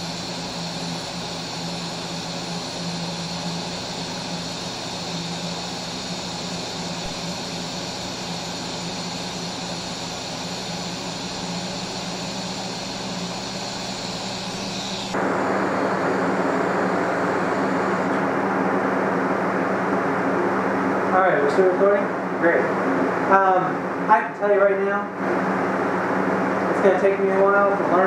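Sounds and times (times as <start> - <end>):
welding arc hissing: 0.0 - 18.2.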